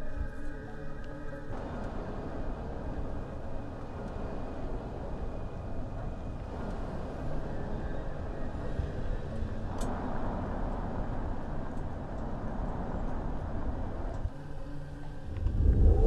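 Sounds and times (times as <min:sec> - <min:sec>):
car engine and road noise: 0:01.6 - 0:14.3.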